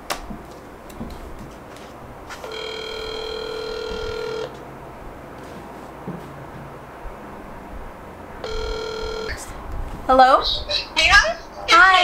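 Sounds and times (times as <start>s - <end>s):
phone ringback tone: 2.4s - 4.6s, 8.4s - 9.5s.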